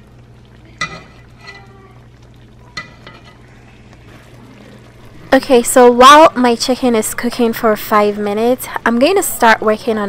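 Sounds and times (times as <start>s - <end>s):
soft steady sizzle: 0.0s - 10.0s
metal spoon clinking on skillet: 0.8s - 1.7s, 2.8s - 3.4s.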